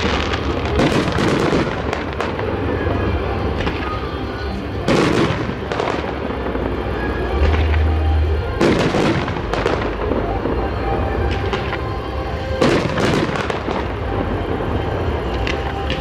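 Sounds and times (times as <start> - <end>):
fireworks bangs: 0.0 - 16.0.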